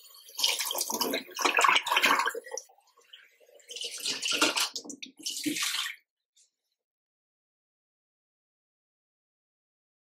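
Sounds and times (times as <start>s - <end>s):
water pouring into glass bottle: 0.1s - 6.0s.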